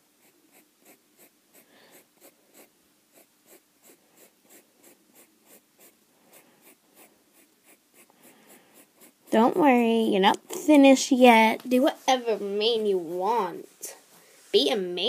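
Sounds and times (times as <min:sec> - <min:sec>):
pencil scratching on paper: 0:00.1 - 0:09.8.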